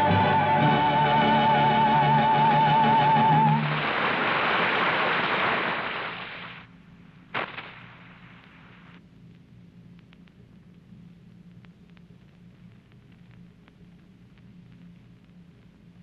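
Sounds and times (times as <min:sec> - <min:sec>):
low hum with crackle: 0:03.2 - 0:16.0.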